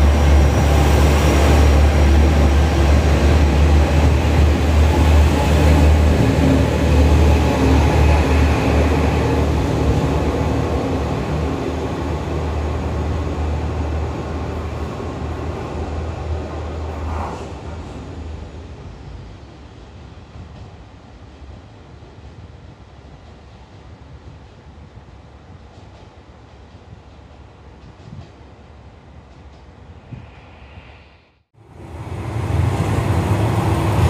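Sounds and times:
diesel train engine drone: 0.0 - 20.2
rail noise: 0.0 - 34.0.

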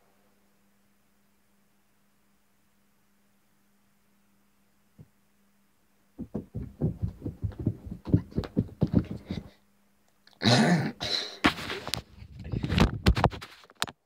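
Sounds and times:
heavy thudding footsteps on floor: 6.2 - 9.6.

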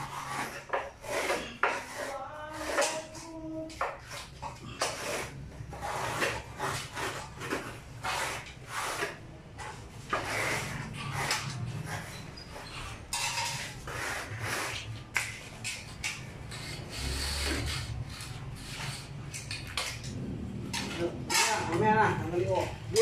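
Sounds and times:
plastering tool scraping mortar: 0.0 - 23.0.

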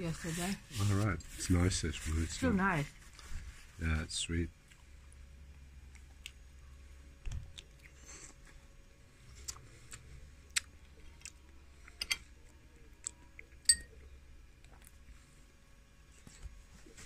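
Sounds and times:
chewing crisp fruit: 4.6 - 8.6, 9.2 - 15.1
spoon clinking in ceramic bowl: 13.7 - 14.0.

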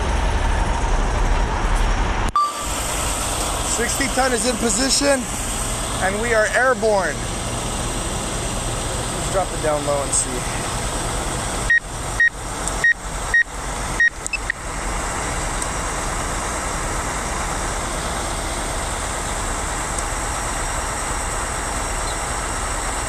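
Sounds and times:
diesel engine running: 0.0 - 23.0
short high electronic beeps: 2.4 - 3.3.

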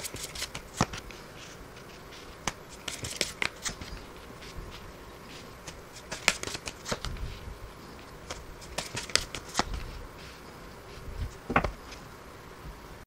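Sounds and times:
cards snapping and slapping: 0.0 - 1.2, 2.4 - 4.0, 5.6 - 7.2, 8.2 - 9.8.

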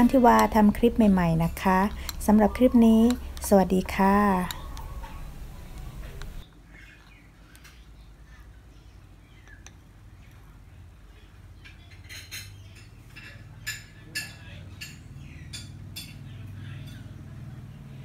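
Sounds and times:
low steady hum: 0.0 - 11.9.

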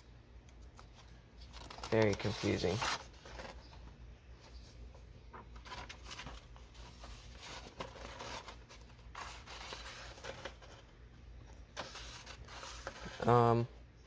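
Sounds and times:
paper pages rustling: 0.6 - 3.8, 5.3 - 10.9, 11.7 - 13.4.

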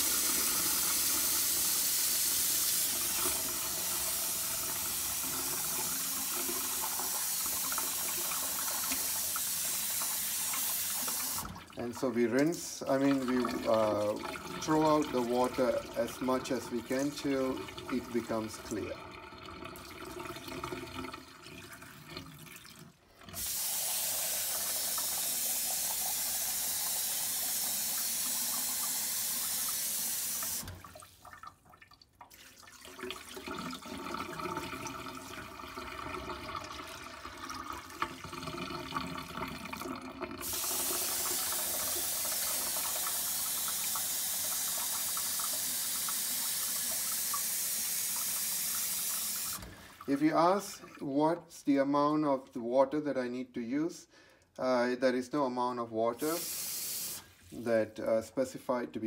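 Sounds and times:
water splashing into steel sink: 16.8 - 51.0.

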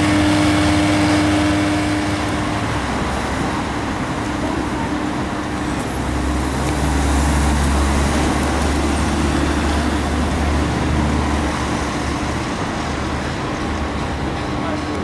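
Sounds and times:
cars passing with tyre hiss: 0.0 - 14.3
bus engine rumble: 0.0 - 15.0.

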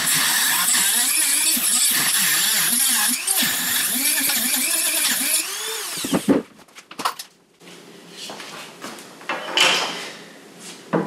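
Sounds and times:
rotary tool grinding metal: 0.0 - 6.2.

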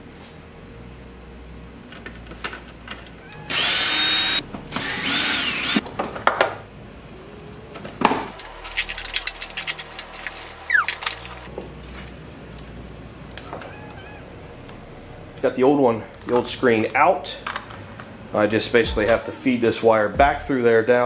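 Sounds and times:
cordless drill running: 3.5 - 5.8.

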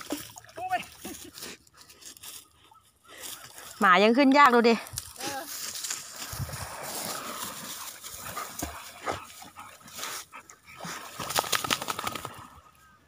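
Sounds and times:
dry grass rustling: 0.0 - 10.2.

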